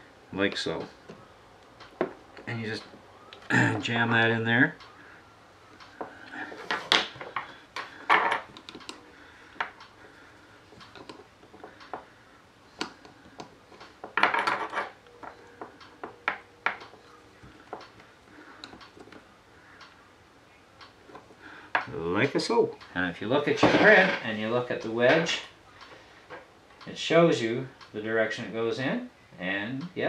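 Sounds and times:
metal parts scraping: 14.3 - 15.0.

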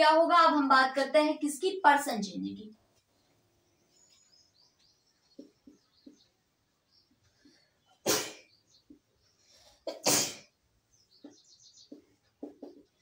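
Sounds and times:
marker squeaking on whiteboard: 5.2 - 6.5, 11.2 - 13.0.

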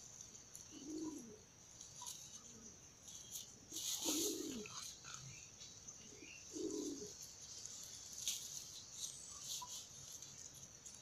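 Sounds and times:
insects droning: 0.0 - 11.0
dove cooing: 0.6 - 2.8, 3.5 - 5.3, 6.0 - 7.2.

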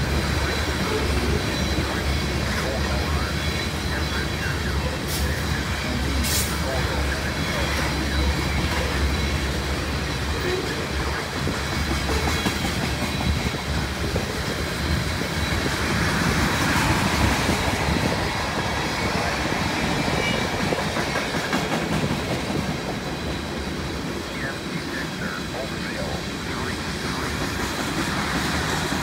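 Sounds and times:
train wheels clattering over rail joints: 11.4 - 23.6.

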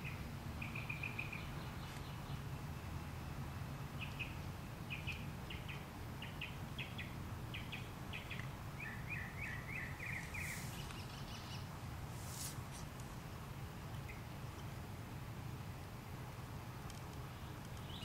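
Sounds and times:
bird chirping: 0.0 - 3.0, 3.8 - 11.8, 17.3 - 18.0
low background noise: 0.0 - 18.0
rustling: 10.1 - 11.3, 12.0 - 13.2.

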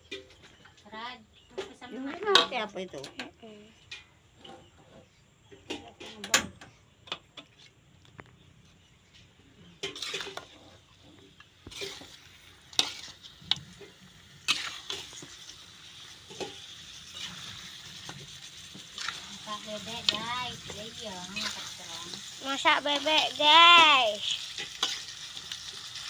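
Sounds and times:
metal spoon scraping a pan: 9.6 - 26.0.

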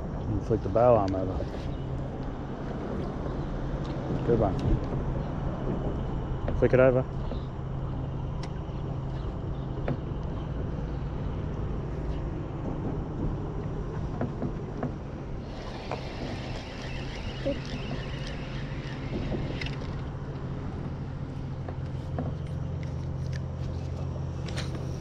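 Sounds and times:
boat motor humming: 12.5 - 25.0
fishing reel clicks: 15.4 - 20.1
fishing reel whirring: 15.4 - 20.3.

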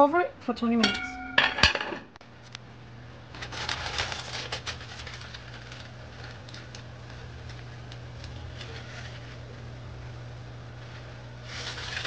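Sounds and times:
steady low hum: 0.0 - 12.0
metal lid clanking on pot: 0.8 - 2.0.

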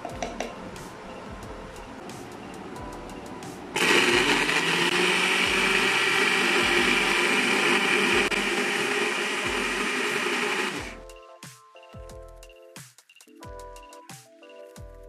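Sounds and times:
electric blender whirring: 3.8 - 11.0.

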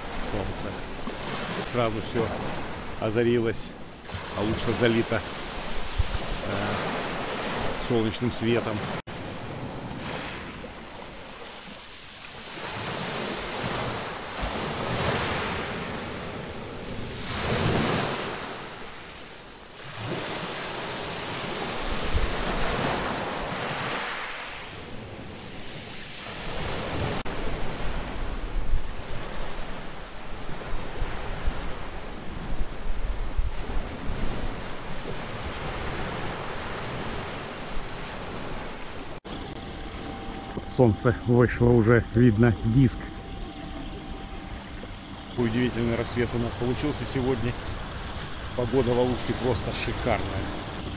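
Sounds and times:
small waves washing ashore: 0.0 - 50.9
wind buffeting microphone: 5.4 - 7.8, 21.4 - 23.7, 24.8 - 40.4, 44.5 - 50.9.

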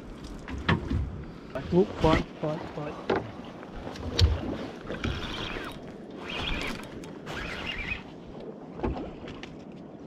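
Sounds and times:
fishing reel gears whirring: 4.9 - 8.1.

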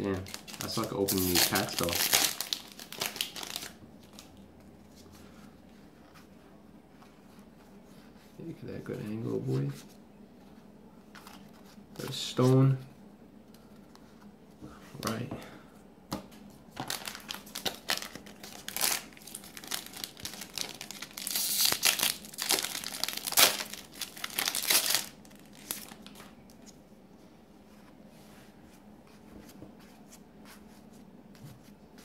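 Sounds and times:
card pack tearing and crinkling: 0.1 - 4.2, 16.8 - 26.2
cards rustling: 0.1 - 4.3.

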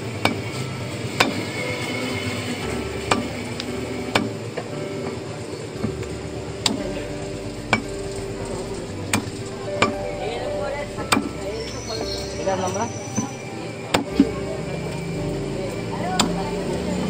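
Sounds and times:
background murmur: 0.0 - 17.0.

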